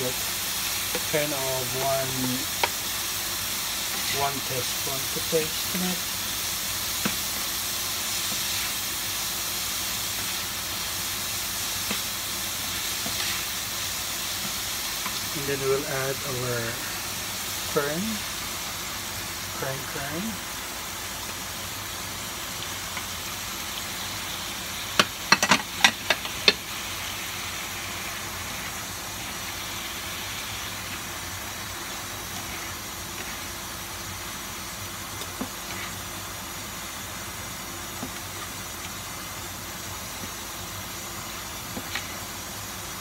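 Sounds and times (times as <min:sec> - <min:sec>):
food sizzling in a pan: 0:00.0 - 0:43.0
sharp knocks on a pan: 0:25.0 - 0:26.6.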